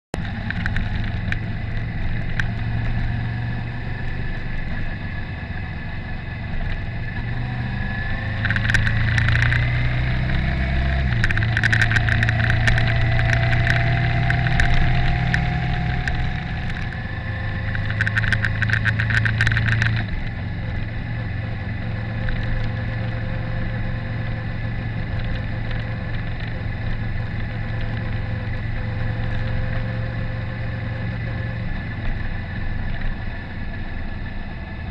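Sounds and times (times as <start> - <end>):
motorcycle engine running: 0.2 - 34.9
rapid rattling clicks: 8.4 - 9.7, 11.0 - 17.0, 17.6 - 20.2.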